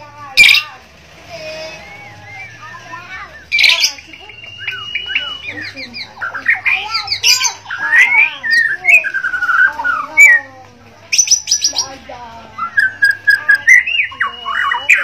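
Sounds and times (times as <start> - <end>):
bird singing whistled phrases: 1.5 - 10.5, 12.6 - 15.0.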